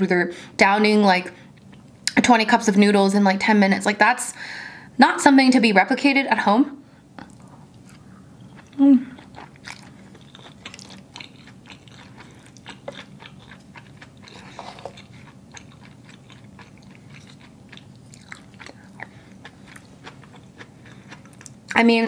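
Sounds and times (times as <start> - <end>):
chewing and wet mouth sounds: 7.2 - 21.9.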